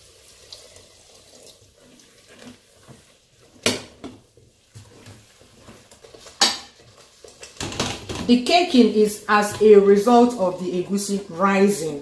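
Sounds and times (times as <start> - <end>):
liquid trickling into a pot: 0.0 - 3.1.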